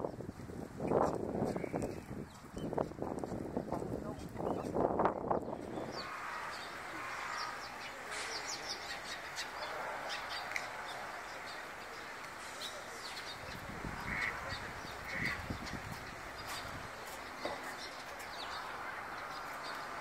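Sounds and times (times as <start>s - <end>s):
sparrows chirping: 0.9s - 20.0s
low bird calls: 5.4s - 16.7s
outdoor background hiss: 5.7s - 20.0s.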